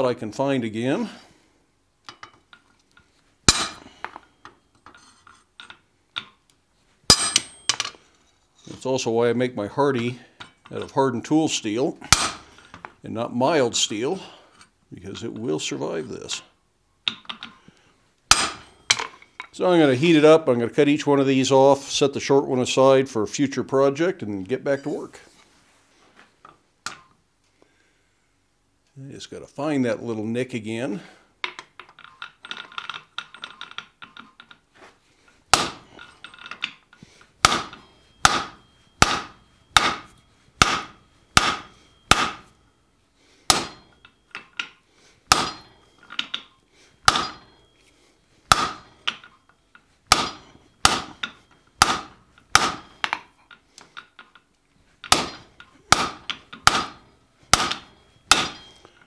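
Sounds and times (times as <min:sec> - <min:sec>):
hammer striking hot steel: 0:03.5 - 0:04.1, 0:07.1 - 0:07.8, 0:12.0 - 0:12.5, 0:18.3 - 0:19.1, 0:35.5 - 0:36.1, 0:37.4 - 0:42.6, 0:43.4 - 0:44.5, 0:45.3 - 0:46.3, 0:47.0 - 0:47.6, 0:48.5 - 0:49.2, 0:50.1 - 0:53.2, 0:55.0 - 0:58.9.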